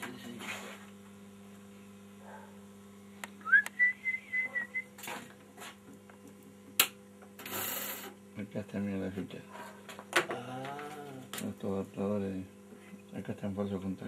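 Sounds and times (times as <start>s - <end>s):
low electrical hum: 0.0s - 14.0s
short rising whistle: 3.4s - 4.9s.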